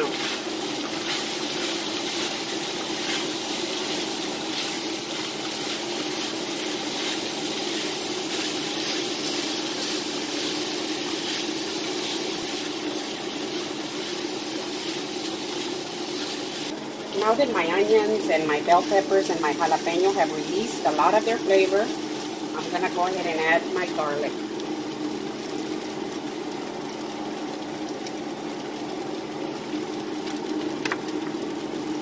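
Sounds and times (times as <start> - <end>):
wooden spatulas stirring: 0.0 - 10.4
meat and vegetables sizzling in skillet: 0.0 - 32.0.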